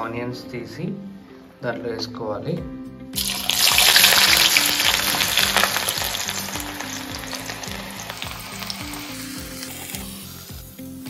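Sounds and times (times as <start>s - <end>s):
onions sizzling in hot oil: 3.2s - 11.0s.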